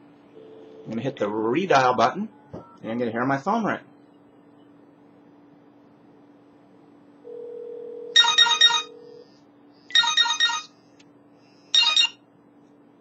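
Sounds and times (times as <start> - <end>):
phone ringtone beeps: 7.4 - 9.2, 9.9 - 10.7, 11.8 - 12.2.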